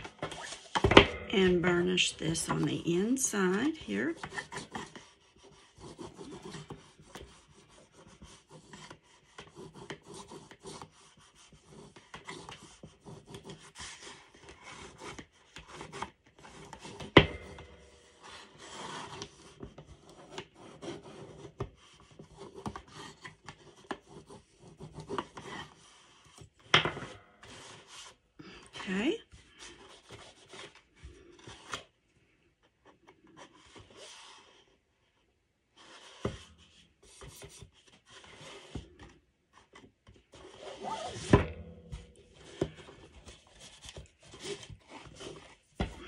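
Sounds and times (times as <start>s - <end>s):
bone folder rubbing on cardstock: 4.1s - 17.0s.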